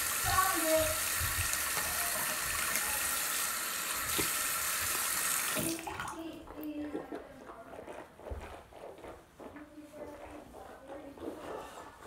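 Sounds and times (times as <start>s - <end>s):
tap water splashing into sink: 0.0s - 6.3s.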